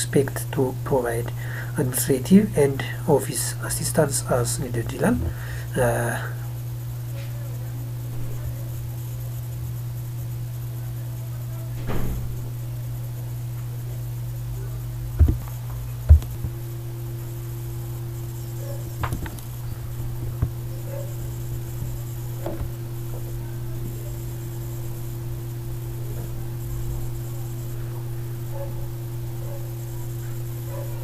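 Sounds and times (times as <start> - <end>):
low electrical hum: 0.0 - 31.0
short thumps: 15.2 - 16.6.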